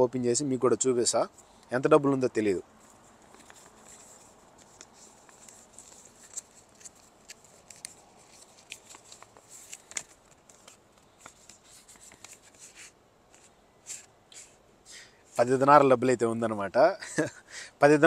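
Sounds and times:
paper envelope rustling: 0:02.7 - 0:14.6
sharp paper crackles: 0:02.8 - 0:14.5.

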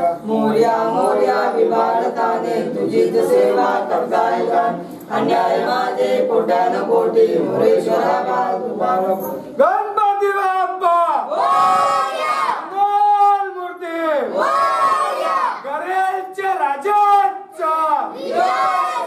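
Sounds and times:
group of voices singing: 0:00.0 - 0:09.6, 0:18.1 - 0:19.0.

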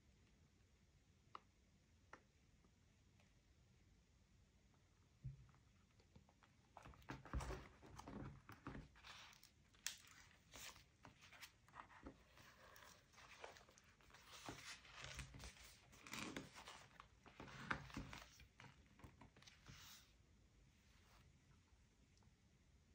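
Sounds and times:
paper rustling: 0:06.8 - 0:20.1.

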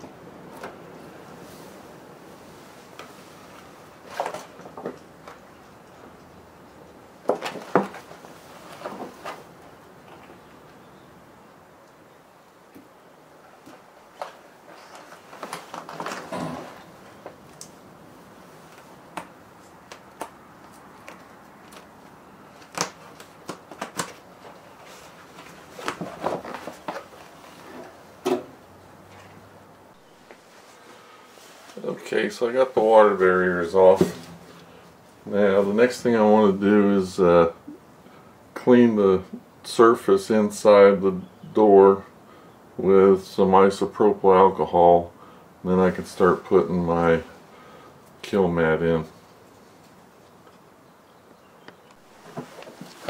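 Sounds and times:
plastic sheet crackling: 0:13.7 - 0:17.8, 0:18.6 - 0:27.7
plastic snapping: 0:22.6 - 0:24.2.

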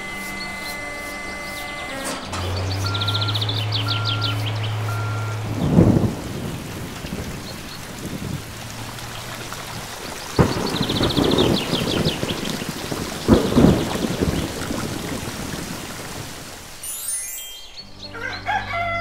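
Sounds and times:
high chirping trills: 0:00.0 - 0:05.8, 0:16.8 - 0:19.0
steady falling rain: 0:00.0 - 0:16.9
thunder rumbling: 0:02.4 - 0:16.8
sharp crack of thunder: 0:05.5 - 0:08.5, 0:10.3 - 0:16.5.

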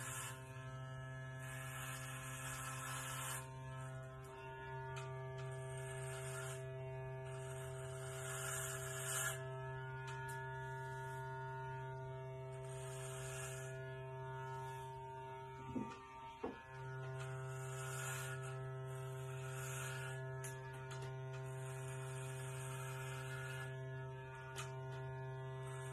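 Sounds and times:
clippers crunching through hair: 0:00.0 - 0:09.4, 0:15.6 - 0:25.0
electric hair clippers buzzing: 0:00.0 - 0:25.9.

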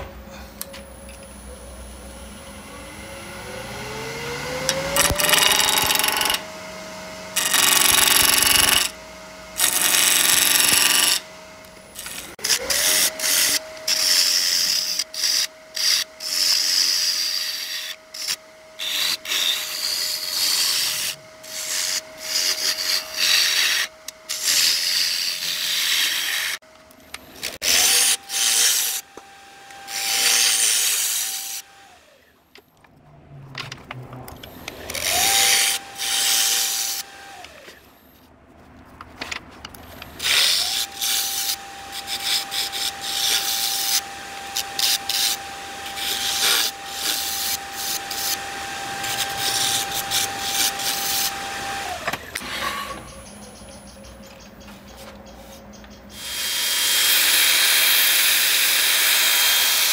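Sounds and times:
wood lathe motor whining: 0:00.8 - 0:26.6, 0:27.4 - 0:32.3, 0:34.4 - 0:37.8, 0:40.2 - 0:53.2
tool scraping spinning wood: 0:03.8 - 0:26.6.

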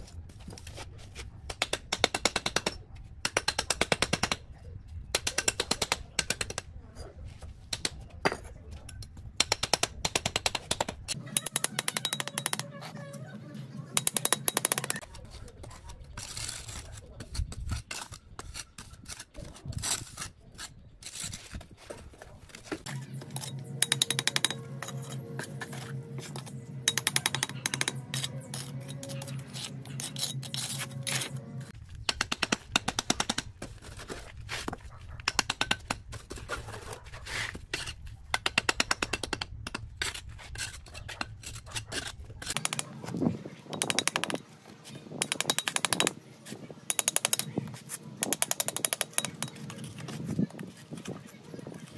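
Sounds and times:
trowel tapping bricks: 0:01.4 - 0:04.5, 0:05.1 - 0:06.7, 0:07.6 - 0:12.7, 0:13.9 - 0:19.7, 0:21.5 - 0:51.8
trowel scraping mortar: 0:14.0 - 0:51.9
steady low hum: 0:22.8 - 0:43.5.

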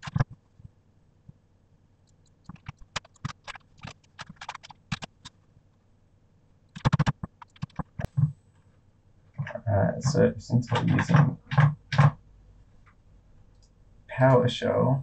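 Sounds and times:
keyboard key clicks: 0:10.7 - 0:12.2.

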